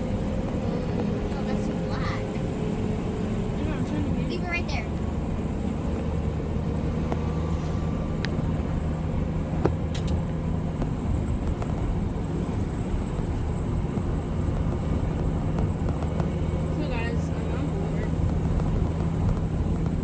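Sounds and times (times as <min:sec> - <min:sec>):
truck engine and road drone: 0:00.0 - 0:20.0.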